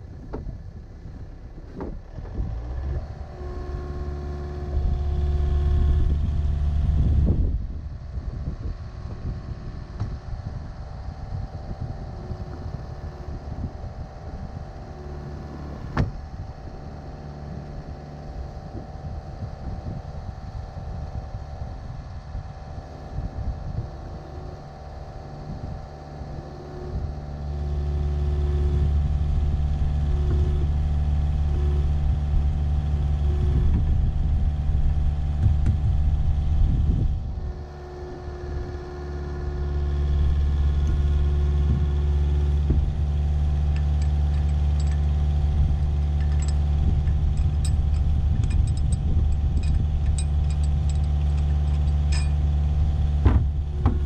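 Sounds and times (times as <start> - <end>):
excavator diesel engine under load: 0.0 - 20.5, 24.9 - 54.0
light metallic clinks: 43.6 - 52.6.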